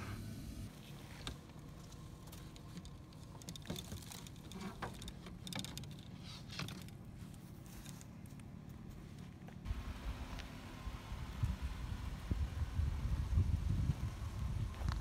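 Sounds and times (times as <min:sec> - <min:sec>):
bow and arrows clicking and rattling: 0:01.1 - 0:08.4
steady low rumble: 0:06.1 - 0:15.0.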